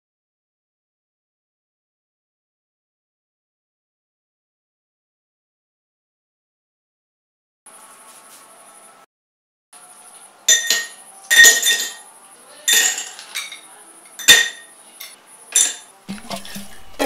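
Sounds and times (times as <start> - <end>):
ice cubes clinking in glass: 10.5 - 12.0, 12.7 - 14.7.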